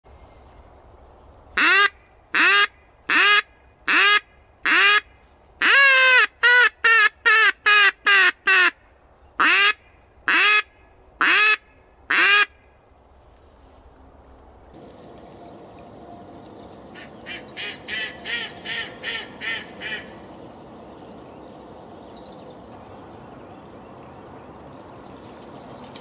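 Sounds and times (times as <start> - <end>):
duck call quacking: 1.6 - 8.8, 9.4 - 12.5, 17.0 - 20.2.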